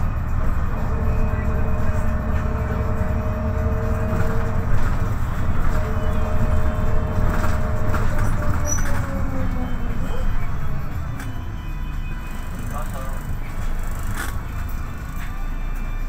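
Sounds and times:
steady whine: 0.0 - 8.5
bus engine and road rumble: 0.0 - 16.0.

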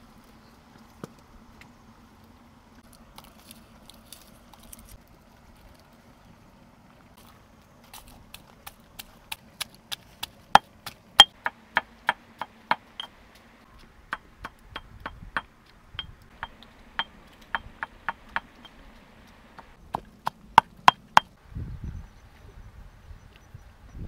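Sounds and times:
stone pestle pounding in mortar: 9.9 - 13.1, 14.1 - 18.6.

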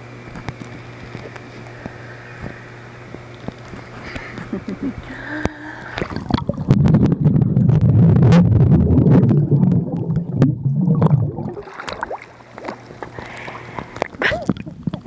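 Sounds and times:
underwater bubbling rumble: 5.8 - 13.0, 13.6 - 15.0.

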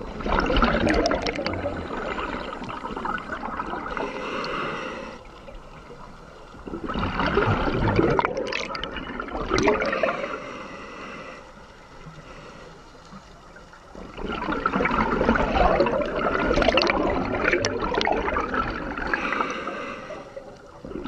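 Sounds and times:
regulator exhaust bubbles gurgling: 0.0 - 4.0, 6.6 - 9.9, 14.1 - 19.2.

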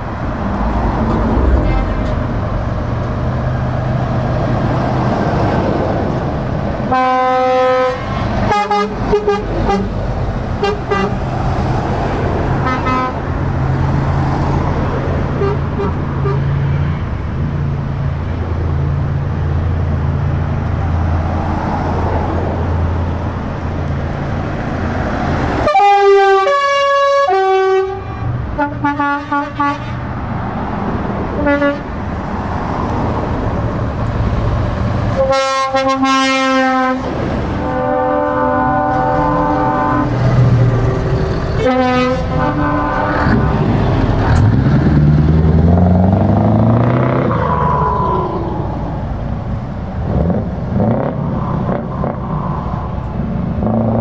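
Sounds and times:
heavy truck engines running: 0.0 - 27.4, 28.0 - 54.0
truck air horns blowing: 6.9 - 10.0, 10.6 - 11.2, 12.6 - 13.3, 15.3 - 17.0, 25.6 - 30.1, 31.4 - 31.9, 35.1 - 40.2, 41.5 - 43.4.

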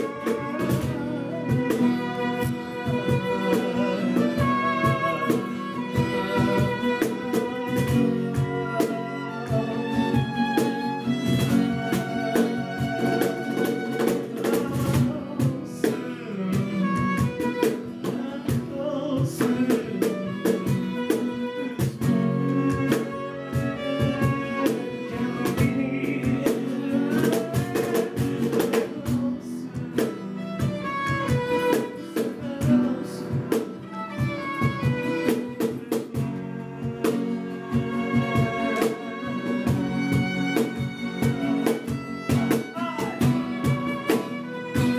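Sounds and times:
cajon beating rhythm: 0.0 - 44.9
strummed guitar: 0.0 - 44.9
violin melody: 0.0 - 44.9.

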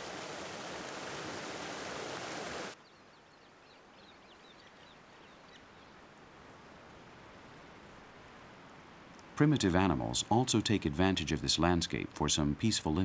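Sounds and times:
water rushing over boulders: 0.0 - 2.8.

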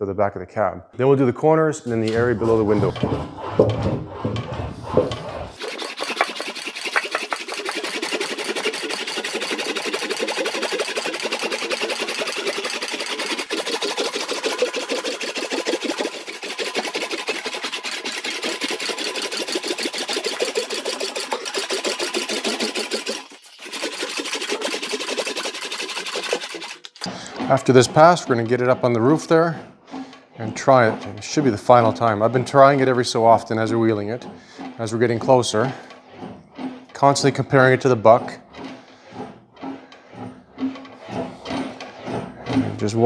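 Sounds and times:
metal wheel rolling sheet metal: 1.8 - 43.0.

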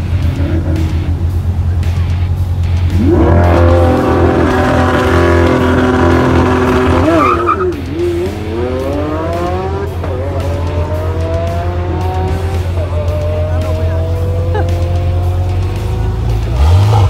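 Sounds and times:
car engine accelerating hard: 0.0 - 17.0.

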